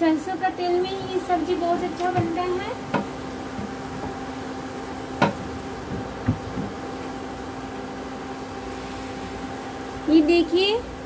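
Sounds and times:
induction cooktop fan hum: 0.0 - 11.0
short knocks: 2.0 - 4.2, 5.2 - 6.8.

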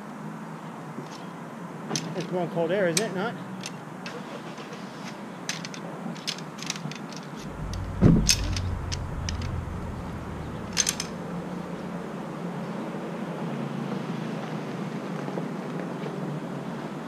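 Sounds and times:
thump and low rumble: 7.4 - 12.2.

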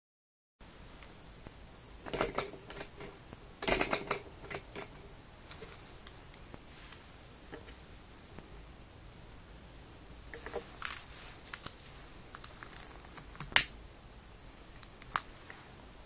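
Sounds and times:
model engine clicking and clattering: 2.1 - 5.0.

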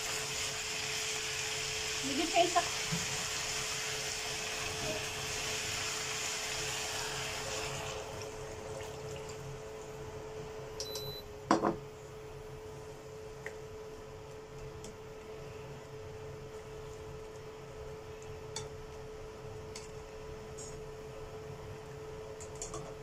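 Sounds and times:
water sizzling in a frying pan: 0.0 - 9.5.

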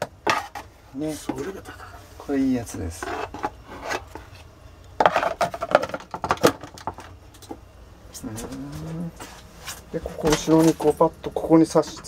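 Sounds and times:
plastic cover knocking and rattling: 5.0 - 7.2.

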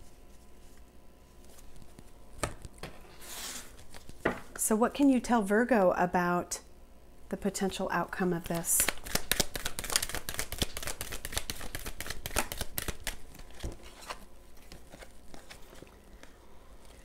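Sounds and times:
cards shuffling: 3.3 - 4.2, 8.4 - 17.0.

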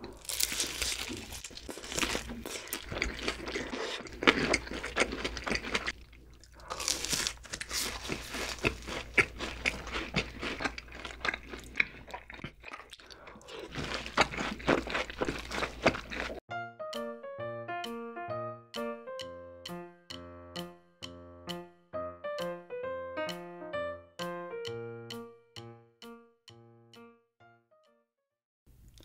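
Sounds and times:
crunching and chewing fried food: 0.0 - 16.4, 28.8 - 29.0.

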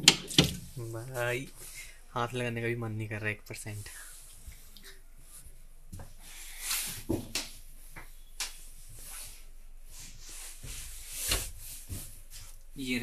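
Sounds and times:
sharp knocks and clicks: 0.0 - 0.6.

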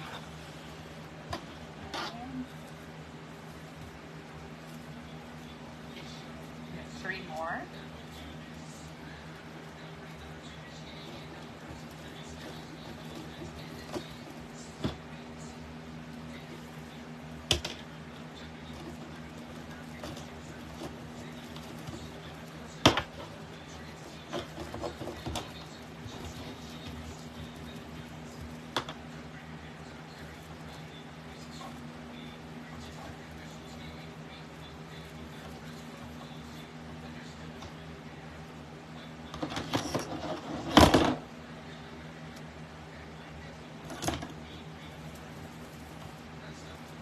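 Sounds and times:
faint steady hum: 0.0 - 47.0.

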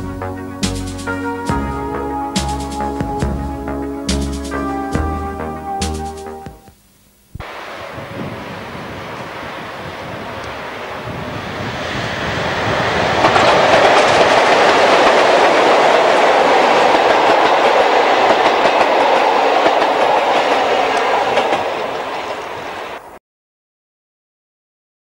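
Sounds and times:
train wheels rumbling and clicking: 8.0 - 23.0.

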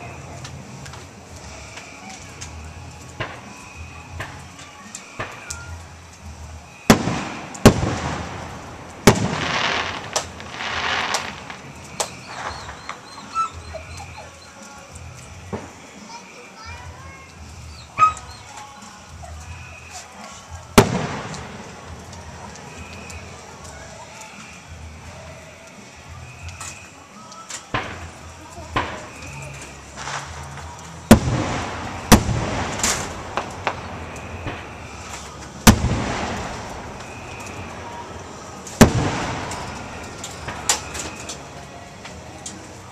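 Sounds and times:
fireworks bangs with echo: 0.0 - 5.8, 6.6 - 13.4, 20.7 - 24.5, 27.7 - 42.9
fireworks hiss: 0.0 - 13.7, 14.6 - 42.9
small fireworks pops: 0.0 - 13.8, 14.6 - 42.9.

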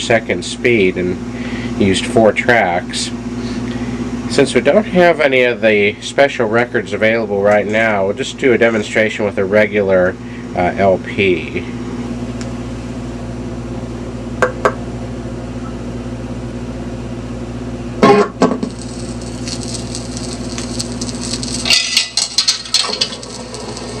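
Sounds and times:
amplifier hum: 0.0 - 24.0
record crackles and pops: 18.0 - 24.0
record surface hiss: 18.0 - 24.0
record set on turntable clicks: 19.1 - 24.0.

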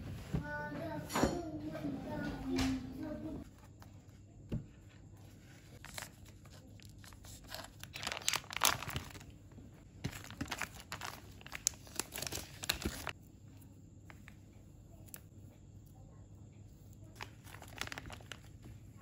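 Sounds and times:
plastic packet crinkling: 5.8 - 9.3, 10.0 - 13.2, 17.2 - 18.8.

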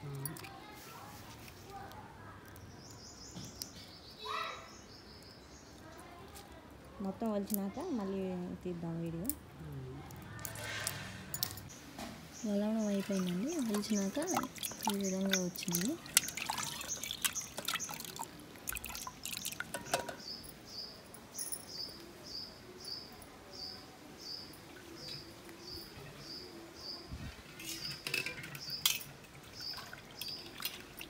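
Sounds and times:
water splashing in a pot: 12.4 - 20.2, 27.4 - 31.0.

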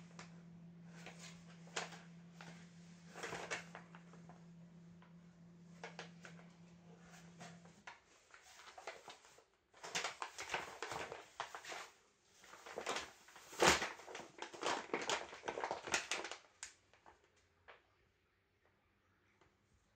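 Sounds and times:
paper bag rustling and crinkling: 0.9 - 4.5, 5.7 - 17.2.

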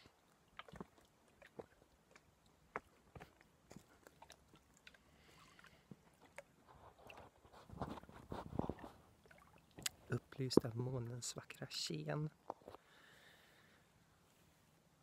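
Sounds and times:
phone rustling and rubbing: 6.7 - 9.0.

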